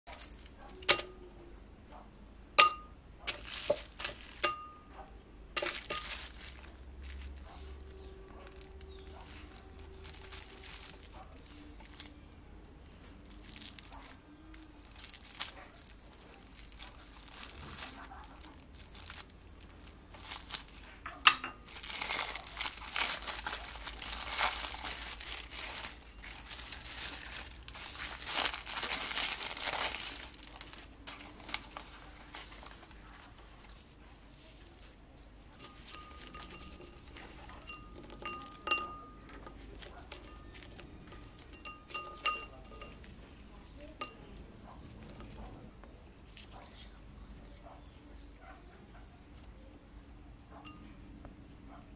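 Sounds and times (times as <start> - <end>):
cellophane crinkling and tearing: 0.1 - 1.2, 3.3 - 4.6, 5.6 - 21.0, 21.6 - 34.7, 35.6 - 41.6
objects clinking on glass plate: 2.6 - 4.9, 5.6 - 7.2, 35.6 - 43.2.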